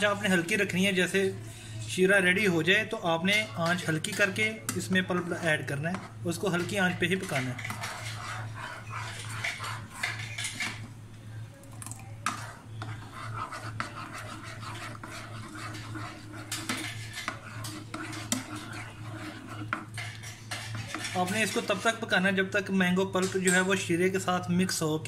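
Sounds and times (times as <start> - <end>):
steady low hum: 0.0 - 22.6
spatula scraping a saucepan: 3.1 - 10.9, 12.1 - 22.2.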